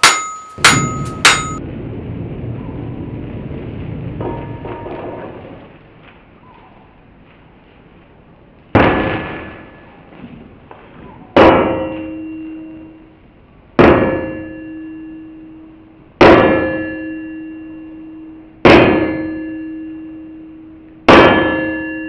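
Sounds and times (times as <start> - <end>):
anvil ringing: 0.0 - 1.6, 11.4 - 13.1, 13.8 - 22.0
hammer striking iron on anvil: 0.0 - 1.6, 11.4 - 12.9, 13.8 - 15.3, 16.2 - 22.0.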